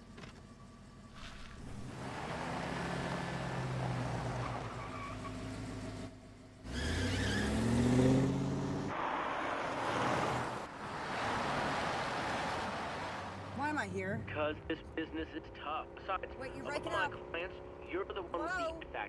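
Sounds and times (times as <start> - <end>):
tyre and road noise: 0.0 - 19.0
car engine revving: 1.1 - 18.6.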